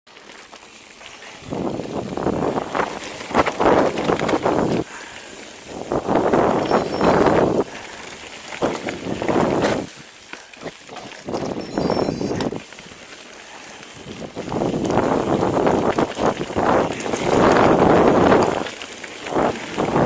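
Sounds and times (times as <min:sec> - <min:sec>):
tyres crunching over loose stones: 0:00.1 - 0:20.0
wind buffeting microphone: 0:01.4 - 0:04.9, 0:05.6 - 0:10.0, 0:14.0 - 0:20.0.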